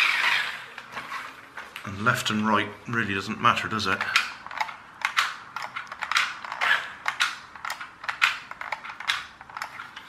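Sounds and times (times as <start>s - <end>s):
toy car gear whirrs: 0.0s - 1.4s, 4.0s - 10.0s
controller clicks: 3.9s - 9.8s.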